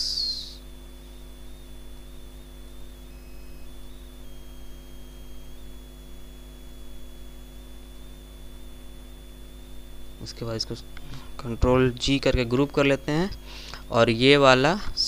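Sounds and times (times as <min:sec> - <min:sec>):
background hiss: 0:00.0 - 0:00.7
electrical mains hum: 0:00.0 - 0:15.0
faint high whine: 0:00.0 - 0:15.0.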